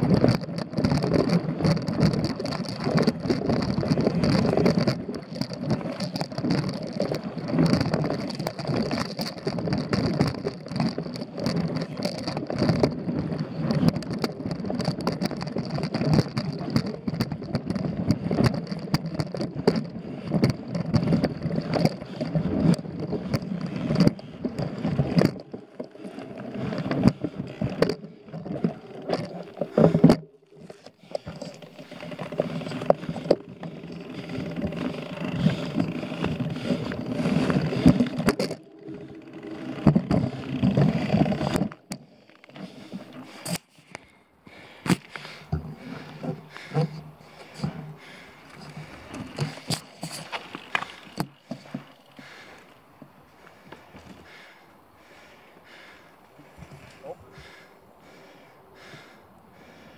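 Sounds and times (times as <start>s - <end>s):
tyres rumbling on dirt: 0.0s - 43.6s
bike frame rattling: 0.0s - 59.0s.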